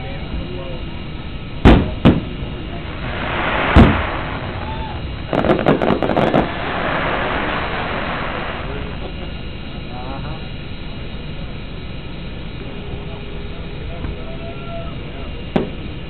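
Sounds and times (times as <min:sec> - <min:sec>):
firework crackling pops: 0:01.6 - 0:09.5, 0:15.5 - 0:15.9
firework shell bursting: 0:01.6 - 0:09.8.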